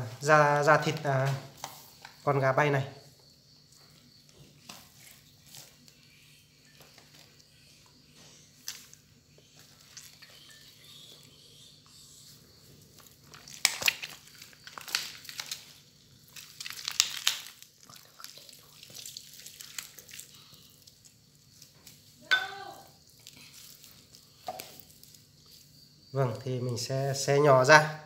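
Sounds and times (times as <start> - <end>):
chicken meat ripping and crackling: 13.0 - 22.0.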